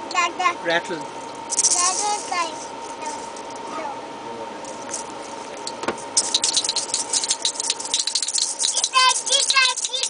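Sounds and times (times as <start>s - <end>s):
plastic baby rattle shaking: 1.5s - 2.4s, 4.7s - 10.0s.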